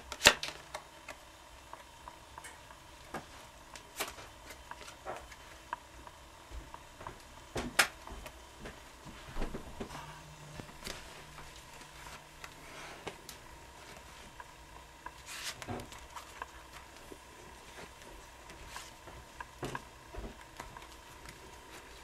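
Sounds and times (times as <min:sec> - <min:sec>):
playing cards clicking and rustling: 0:00.0 - 0:01.2, 0:03.1 - 0:05.6, 0:10.6 - 0:22.0
playing card snap: 0:00.1 - 0:00.8.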